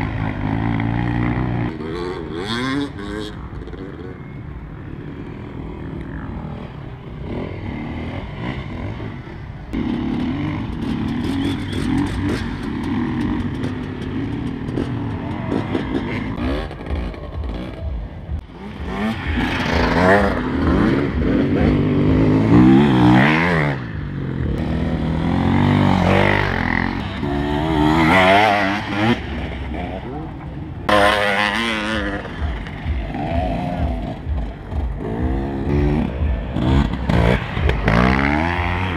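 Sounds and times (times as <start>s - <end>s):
dirt bike engines revving: 0.0s - 38.9s.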